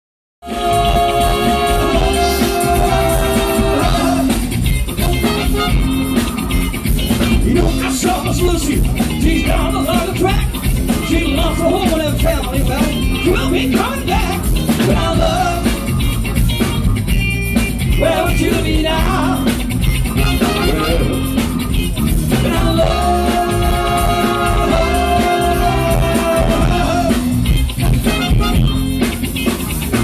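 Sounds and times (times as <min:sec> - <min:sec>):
lead and backing vocals: 0:00.4 - 0:04.6, 0:13.3 - 0:15.8, 0:17.9 - 0:19.6, 0:22.3 - 0:27.4
soul band playing: 0:00.4 - 0:30.0.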